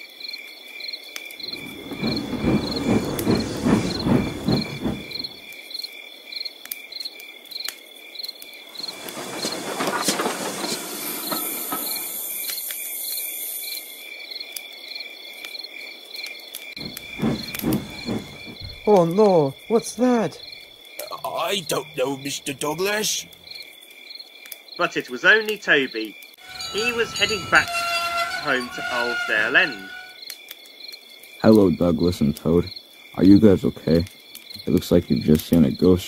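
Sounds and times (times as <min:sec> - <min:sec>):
crickets chirping: 0:00.0 - 0:36.0
toy train rattling on plastic track: 0:08.8 - 0:12.1, 0:26.5 - 0:30.2.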